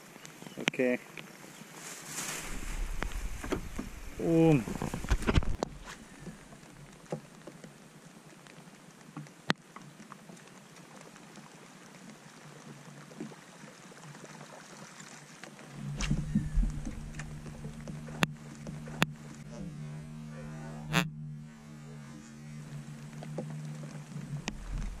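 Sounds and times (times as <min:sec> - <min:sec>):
light rain pattering: 0:00.0 - 0:25.0
boat motor humming: 0:02.3 - 0:07.1, 0:15.6 - 0:25.0.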